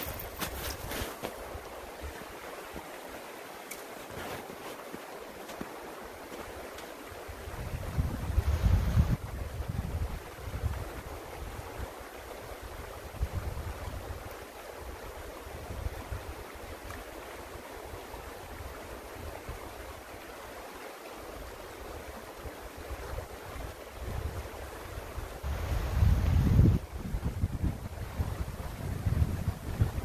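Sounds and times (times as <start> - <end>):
creek water rushing: 0.0 - 30.0
wind rumbling on microphone: 7.2 - 17.2, 21.4 - 30.0.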